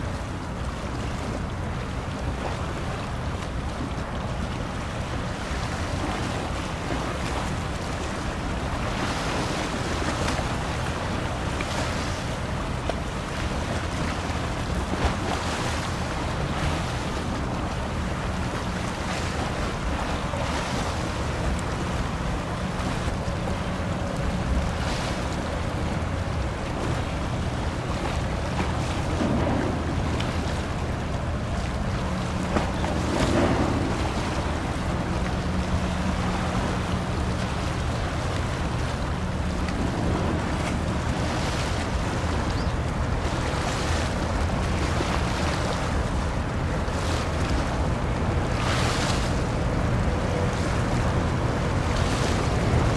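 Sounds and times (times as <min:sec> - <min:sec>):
ship diesel engine drone: 0:00.0 - 0:52.9
water rushing along hull: 0:00.0 - 0:52.9
wind on microphone: 0:00.0 - 0:52.9.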